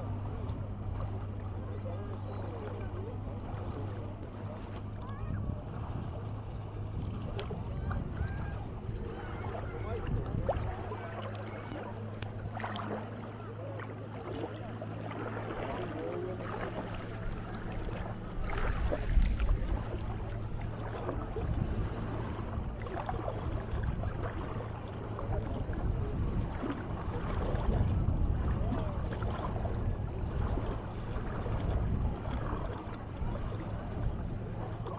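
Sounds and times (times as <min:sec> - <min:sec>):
motorboat engine humming: 0:00.0 - 0:34.9
wind rumble on microphone: 0:00.0 - 0:34.9
people's voices: 0:07.7 - 0:18.2.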